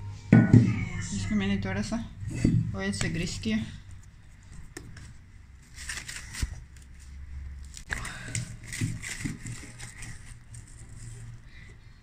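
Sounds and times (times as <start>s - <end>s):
plastic wrap crinkling: 5.1s - 11.4s.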